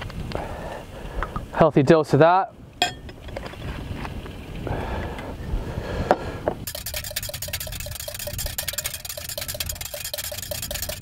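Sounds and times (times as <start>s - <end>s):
whisk clinking in glass bowl: 6.7s - 11.0s.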